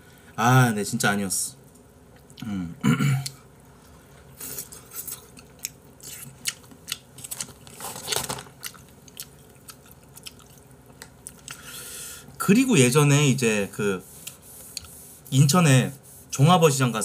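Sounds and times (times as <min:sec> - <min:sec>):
person chewing: 0:02.1 - 0:02.5, 0:03.2 - 0:11.8.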